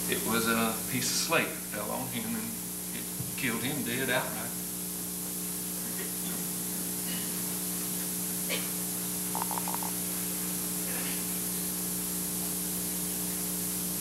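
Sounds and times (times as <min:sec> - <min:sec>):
recording hiss and hum: 0:00.0 - 0:14.0
small pulses: 0:09.4 - 0:10.0.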